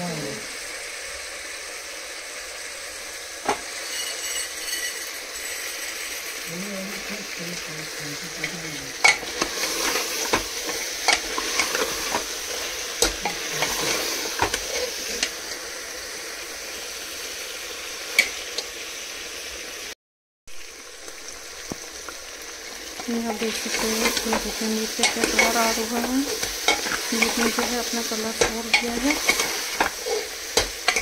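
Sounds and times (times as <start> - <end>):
meat sizzling in oil: 0.0 - 31.0
spoon scraping a pot: 3.8 - 6.3, 9.0 - 15.3, 23.3 - 31.0.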